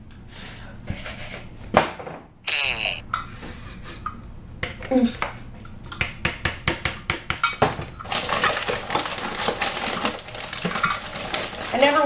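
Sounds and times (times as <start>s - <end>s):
measuring cups rattling: 8.0s - 12.0s.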